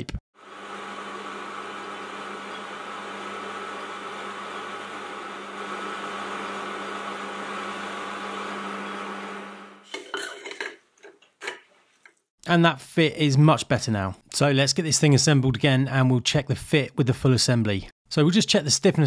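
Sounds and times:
lathe motor hum: 0:00.4 - 0:09.8.

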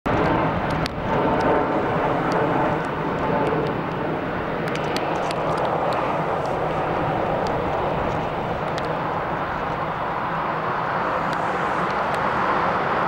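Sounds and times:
light ticks: 0:00.1 - 0:01.5, 0:07.4 - 0:09.0
heavy rain: 0:00.1 - 0:13.0
jet engines running: 0:00.1 - 0:13.0.

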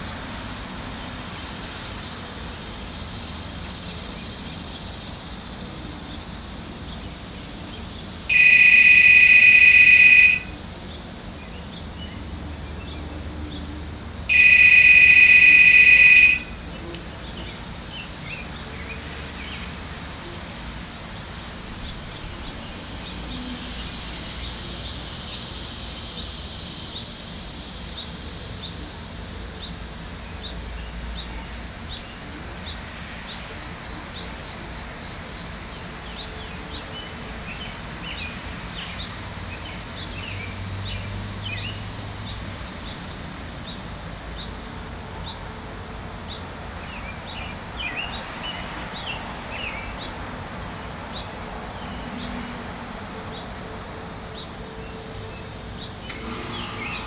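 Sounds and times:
loud electronic beep: 0:08.3 - 0:10.5, 0:14.3 - 0:16.5.

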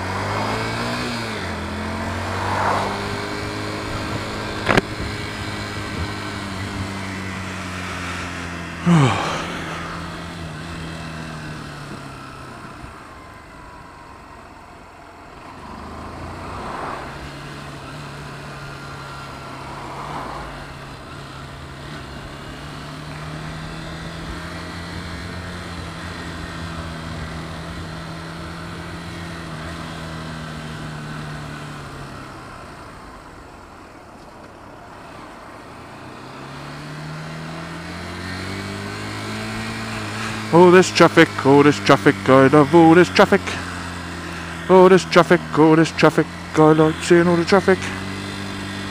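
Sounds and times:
motorcycle engine: 0:00.0 - 0:48.9
wind noise on helmet: 0:03.8 - 0:06.9.

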